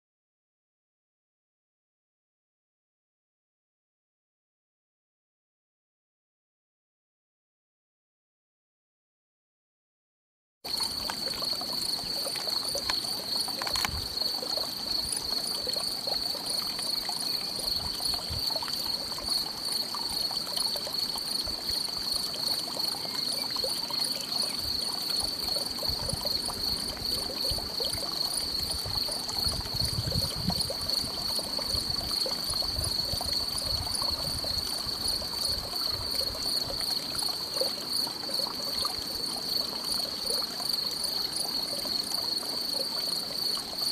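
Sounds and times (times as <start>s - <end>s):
insects stridulating: 10.7s - 43.9s.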